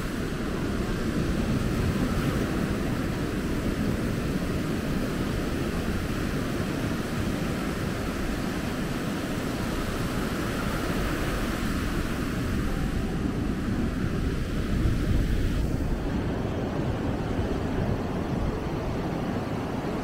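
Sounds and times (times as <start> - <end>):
surf washing on beach: 0.0 - 20.0
wind buffeting microphone: 0.0 - 20.0.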